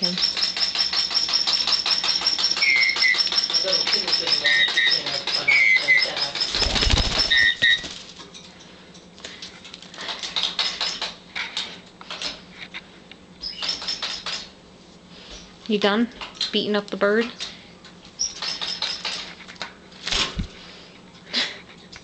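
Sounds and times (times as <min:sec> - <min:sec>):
parrot chirping: 0:04.5 - 0:07.8.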